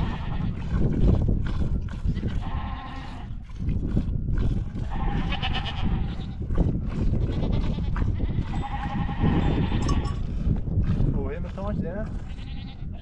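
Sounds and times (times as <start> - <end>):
sheep and goats bleating: 0.0 - 0.6, 2.3 - 3.3, 4.8 - 6.5, 7.1 - 10.2, 12.1 - 13.0.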